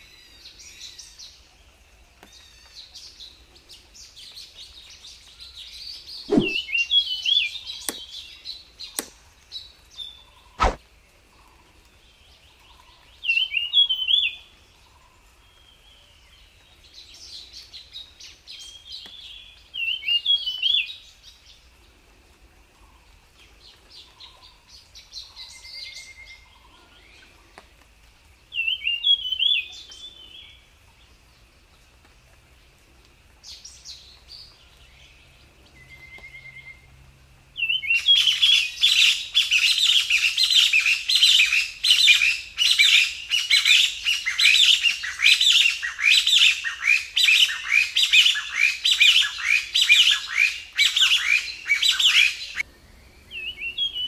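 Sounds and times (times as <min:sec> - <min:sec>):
songbird chirping and warbling: 0:00.0 - 0:21.6, 0:37.6 - 0:54.0.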